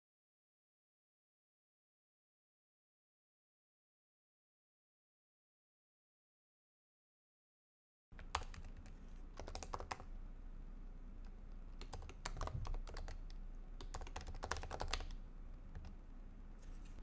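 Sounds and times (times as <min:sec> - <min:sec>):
typing on computer keyboard: 0:08.2 - 0:10.1, 0:11.8 - 0:16.0.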